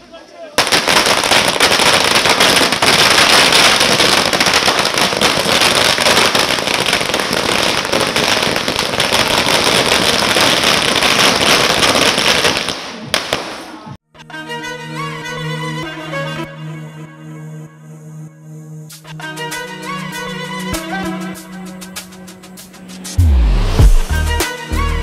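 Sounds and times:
firecrackers crackling: 0.2s - 14.0s
violin music: 14.2s - 21.6s.

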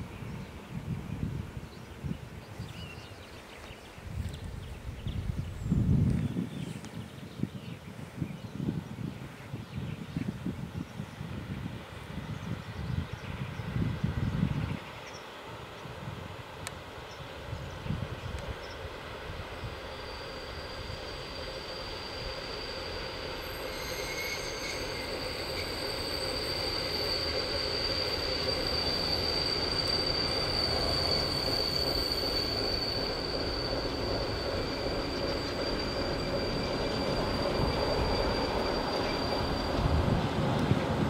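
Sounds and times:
diesel locomotive engine: 8.7s - 41.0s
high-pitched wheel squeal: 19.7s - 40.8s.

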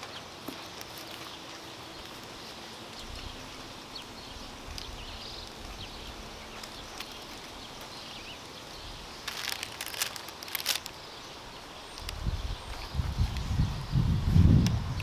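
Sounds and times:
paper crinkling: 0.0s - 2.6s, 9.2s - 11.0s.

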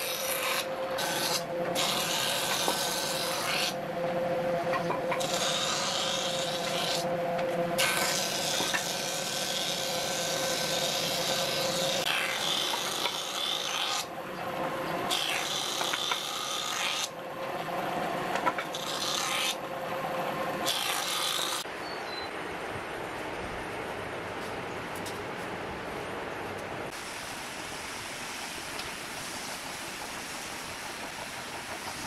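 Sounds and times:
planer cutting wood: 0.0s - 21.6s.

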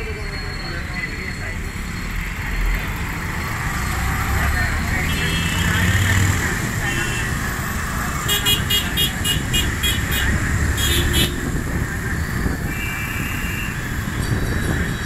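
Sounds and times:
bus engine and road noise: 0.0s - 15.0s
vehicle horn: 5.0s - 5.9s, 6.8s - 7.4s, 8.2s - 11.4s.

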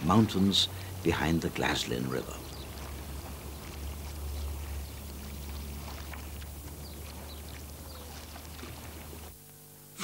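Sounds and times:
steady low rumble: 0.0s - 7.9s.

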